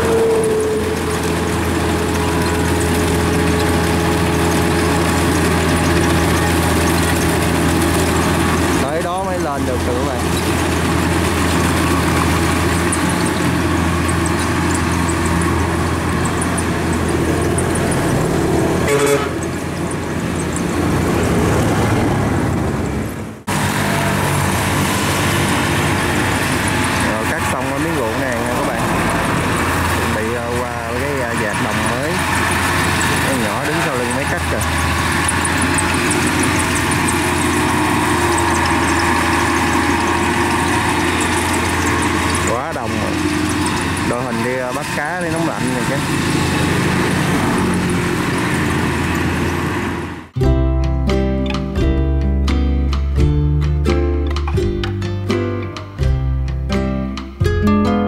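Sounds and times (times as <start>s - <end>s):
diesel engine running: 0.0s - 58.0s
short horn toot: 18.9s - 19.4s.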